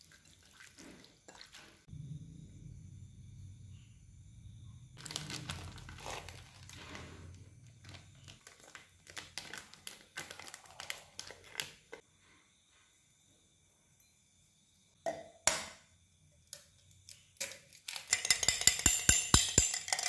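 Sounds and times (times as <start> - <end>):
plastic packet crinkling: 5.0 - 12.0.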